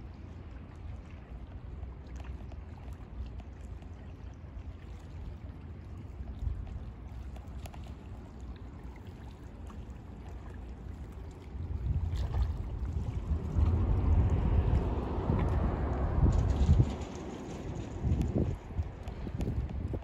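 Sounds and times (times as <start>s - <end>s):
water lapping against rocks: 0.8s - 20.0s
wind buffeting microphone: 11.5s - 20.0s.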